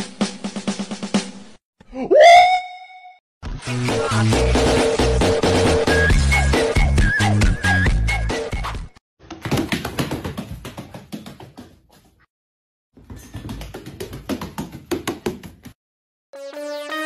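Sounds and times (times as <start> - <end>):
music: 0.0 - 1.6, 3.4 - 9.0, 16.3 - 17.0.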